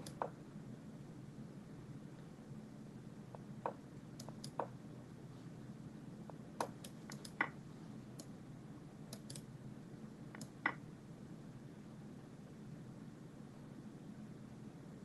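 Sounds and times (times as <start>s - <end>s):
computer mouse clicking: 0.0s - 0.4s, 3.3s - 4.7s, 6.6s - 8.4s, 9.1s - 9.5s, 10.3s - 10.8s
faint steady hum: 0.0s - 15.0s.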